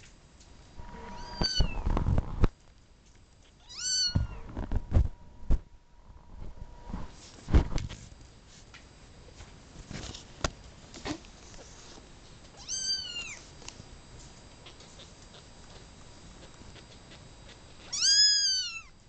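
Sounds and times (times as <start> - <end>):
kitten mewing: 0.8 - 1.8, 14.6 - 18.9.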